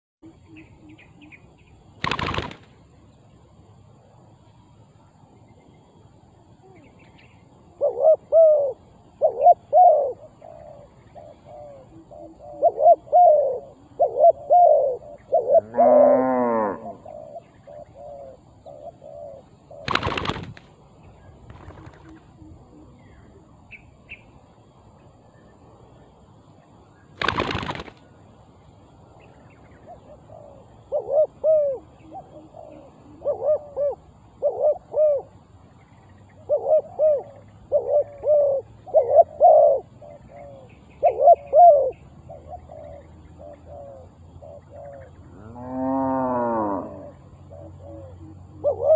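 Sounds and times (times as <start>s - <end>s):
sharp cracks: 2.0s - 2.8s, 19.9s - 20.7s, 27.2s - 28.0s
dove cooing: 7.6s - 20.6s, 21.5s - 23.5s, 29.8s - 35.3s, 36.4s - 48.9s.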